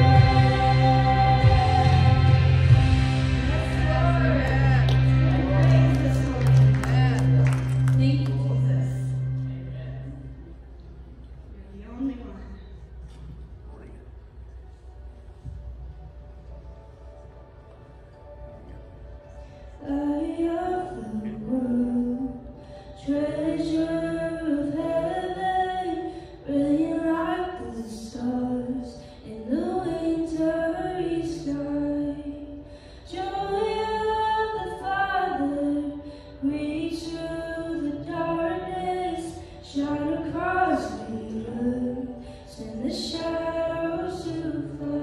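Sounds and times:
woman singing worship song: 0.0s - 7.3s, 19.8s - 45.0s.

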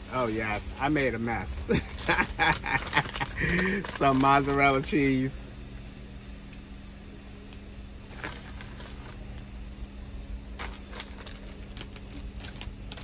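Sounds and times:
steady low hum: 0.0s - 13.0s
plastic bag crinkling: 1.6s - 4.6s, 8.1s - 9.2s, 10.5s - 13.0s.

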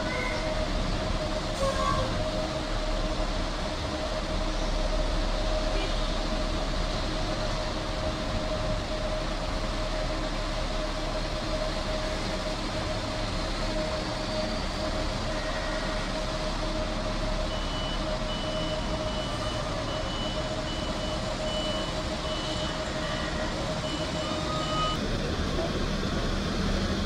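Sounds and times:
bus engine running: 0.0s - 27.0s
reversing alarm beeps: 17.4s - 25.0s.

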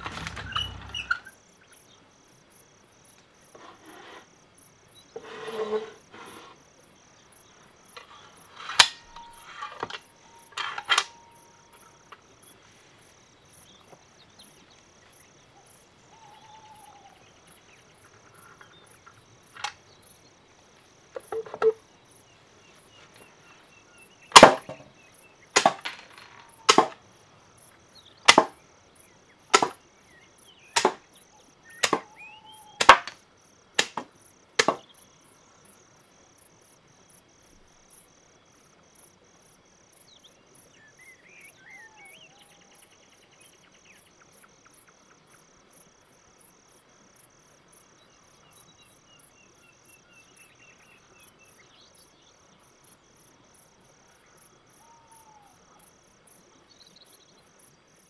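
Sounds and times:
crickets chirping: 0.0s - 58.0s
sharp loud knocks: 24.4s - 24.9s, 25.6s - 26.1s, 26.7s - 27.0s, 28.3s - 28.6s, 29.6s - 29.8s, 30.8s - 31.0s, 31.8s - 32.1s, 32.8s - 33.2s, 33.8s - 34.8s.

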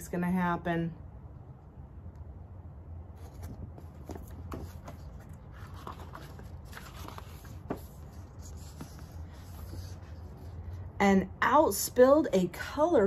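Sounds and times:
book pages rustling: 3.2s - 10.9s.

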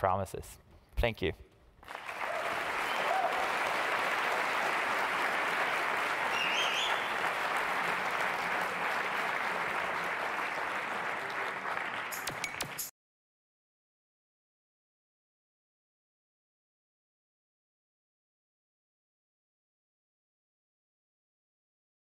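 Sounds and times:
large audience applauding: 1.8s - 12.9s
whistle: 2.8s - 3.1s, 6.2s - 7.2s.

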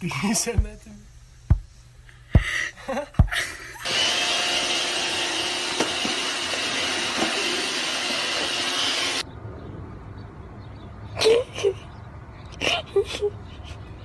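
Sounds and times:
robot vacuum cleaner whirring: 3.8s - 9.2s.

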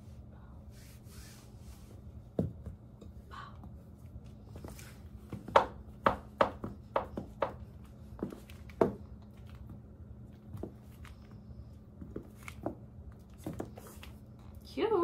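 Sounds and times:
sandal footsteps on tile floor: 4.2s - 9.8s.

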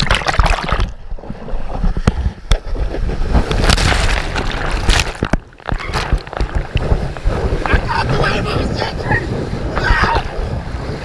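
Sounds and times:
wave rushing and splashing: 0.0s - 11.0s
water knocking against camera: 2.0s - 7.9s.

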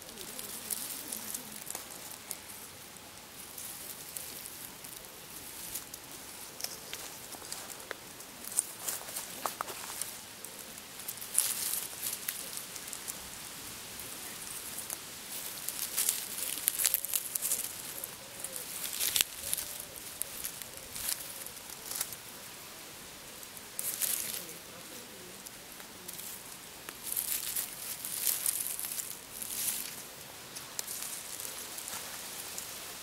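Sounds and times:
dry leaves rustling and crackling: 0.0s - 33.0s.

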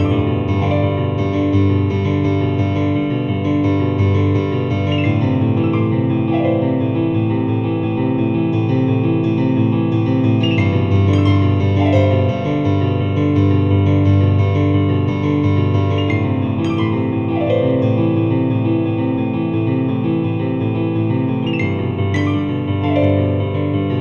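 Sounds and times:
keyboard playing held chords: 0.0s - 14.4s, 15.4s - 24.0s.

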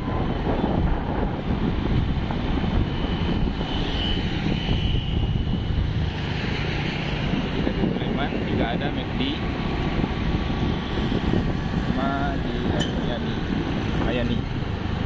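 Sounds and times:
road noise: 0.0s - 15.0s
wind buffeting microphone: 0.0s - 15.0s.

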